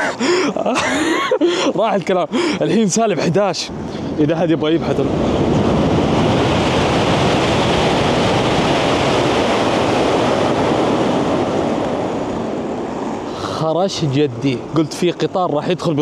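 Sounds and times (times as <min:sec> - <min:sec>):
train passing at speed: 0:04.8 - 0:13.0.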